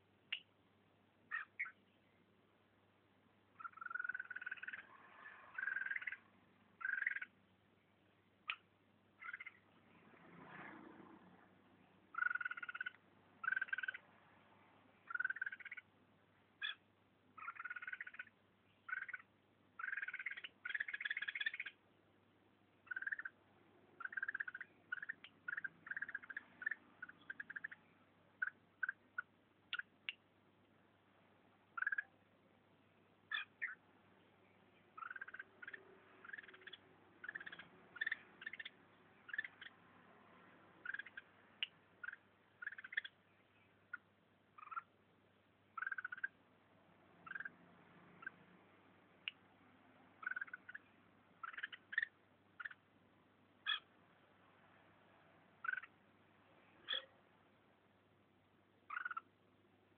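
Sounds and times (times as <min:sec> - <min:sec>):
bulbul agitated calls: 0:01.3 - 0:01.8, 0:03.6 - 0:07.4, 0:08.4 - 0:09.6, 0:12.1 - 0:14.1, 0:15.0 - 0:15.9, 0:16.6 - 0:21.8, 0:22.8 - 0:30.1, 0:31.7 - 0:32.2, 0:33.3 - 0:33.8, 0:34.9 - 0:39.8, 0:40.8 - 0:43.2, 0:43.8 - 0:45.0, 0:45.7 - 0:46.4, 0:47.2 - 0:47.6, 0:48.2 - 0:48.4, 0:50.2 - 0:52.9, 0:53.6 - 0:53.9, 0:55.6 - 0:56.0, 0:56.7 - 0:57.2, 0:58.8 - 0:59.4.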